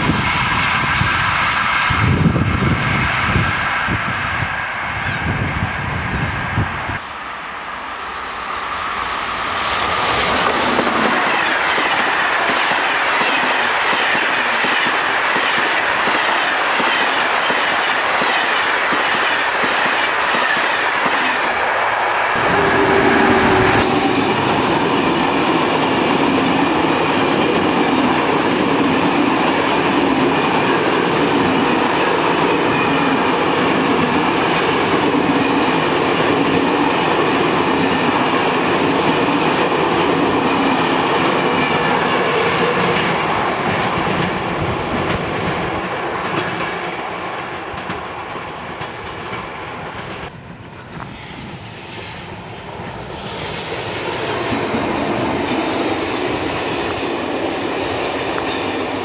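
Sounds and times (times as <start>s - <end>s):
train wheels rushing on rails: 0.0s - 59.0s.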